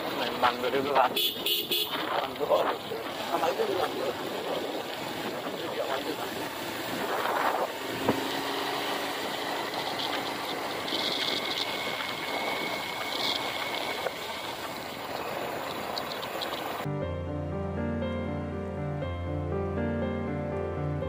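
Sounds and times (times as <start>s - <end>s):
wind rushing over microphone: 0.0s - 16.9s
motorcycle engine running: 3.1s - 16.9s.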